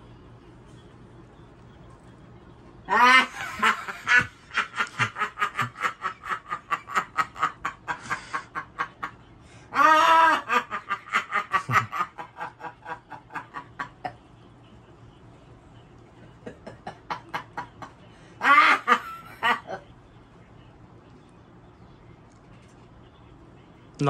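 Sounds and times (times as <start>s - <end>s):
woman laughing hard: 2.9s - 9.1s, 9.7s - 14.2s, 16.4s - 19.8s.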